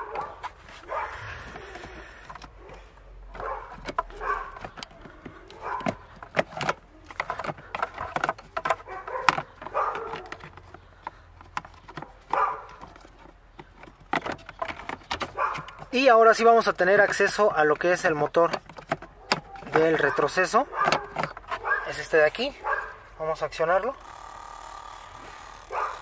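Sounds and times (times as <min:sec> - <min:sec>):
plastic trim clicking and knocking: 0:01.6 - 0:21.8.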